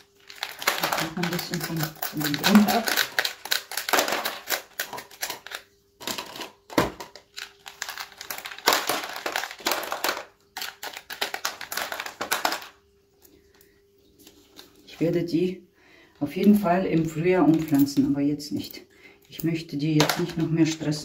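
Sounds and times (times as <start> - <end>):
plastic pot crinkling: 0.0 - 13.5.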